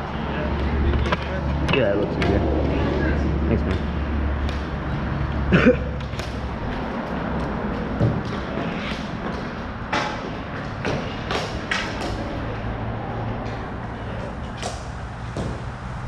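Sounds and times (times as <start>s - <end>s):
hockey sticks clacking on ball: 8.0s - 12.4s.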